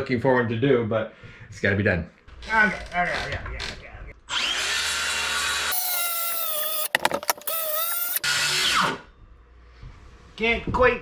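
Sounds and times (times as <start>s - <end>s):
circular saw cutting wood: 4.3s - 6.9s.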